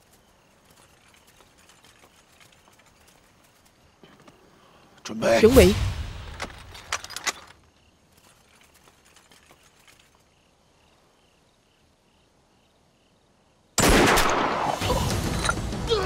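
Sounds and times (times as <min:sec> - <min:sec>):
crickets chirping: 0:00.0 - 0:13.8.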